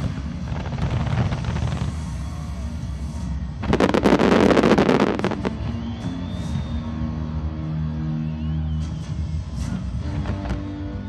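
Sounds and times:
fireworks rapid volley: 0:00.0 - 0:06.0.

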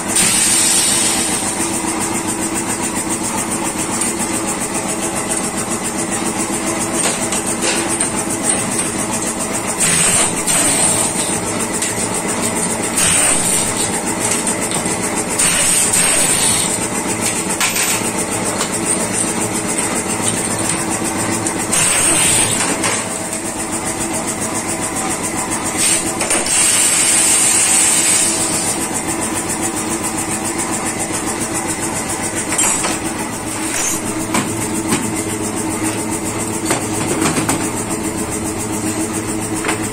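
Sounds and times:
pneumatic impact wrench hammering: 0:00.0 - 0:23.6, 0:24.5 - 0:29.6, 0:32.2 - 0:37.9
air hissing: 0:00.2 - 0:01.6.

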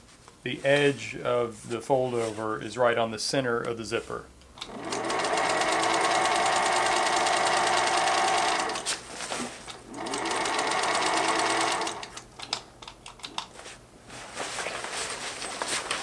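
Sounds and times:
sewing machine running: 0:04.6 - 0:09.0, 0:09.7 - 0:12.2.

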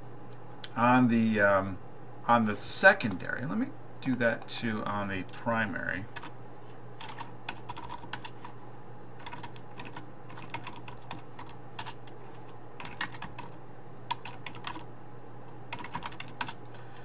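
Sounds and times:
faint low hum: 0:00.0 - 0:17.0
typing on a keyboard: 0:07.0 - 0:08.5, 0:09.2 - 0:14.9, 0:15.7 - 0:16.6.

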